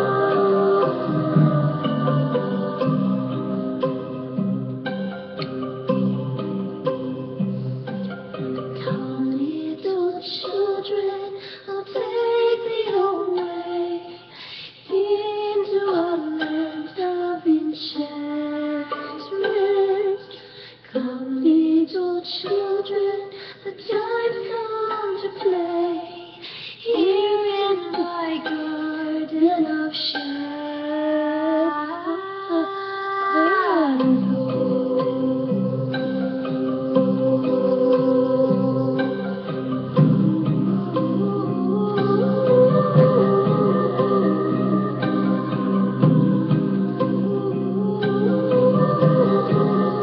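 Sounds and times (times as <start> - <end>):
musical backing: 0.0 - 18.1, 33.4 - 50.0
person singing: 0.0 - 50.0.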